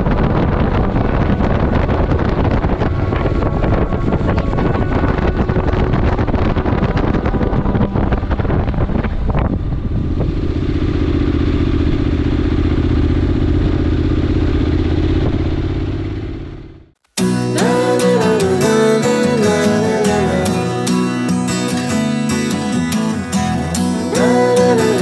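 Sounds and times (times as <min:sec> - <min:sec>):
acoustic guitar music: 0:00.0 - 0:11.5, 0:17.1 - 0:25.0
wind buffeting microphone: 0:00.0 - 0:16.5
motorcycle engine running: 0:00.0 - 0:25.0.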